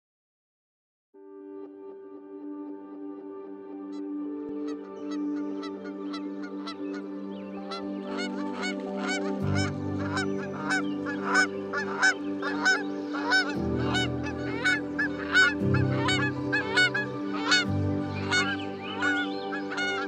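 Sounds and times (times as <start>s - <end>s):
soft background music: 1.2s - 20.0s
geese honking: 5.0s - 20.0s.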